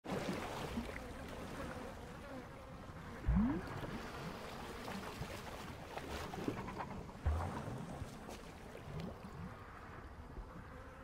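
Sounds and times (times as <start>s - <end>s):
water sloshing and trickling: 0.0s - 10.7s
faint insect buzz: 0.8s - 5.2s, 9.1s - 11.0s.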